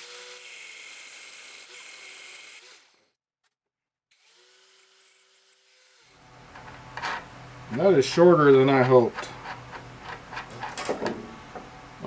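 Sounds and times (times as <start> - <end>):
angle grinder cutting steel: 0.0 - 3.1, 4.1 - 7.3.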